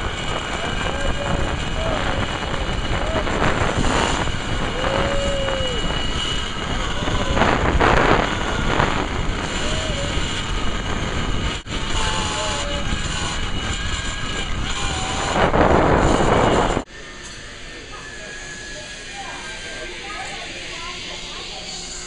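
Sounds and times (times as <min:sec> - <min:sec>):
wind buffeting microphone: 0:00.0 - 0:16.9.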